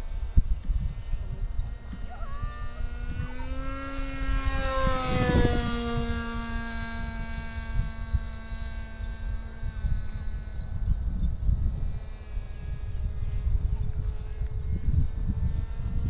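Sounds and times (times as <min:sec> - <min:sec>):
model airplane engine whine: 0:00.0 - 0:16.0.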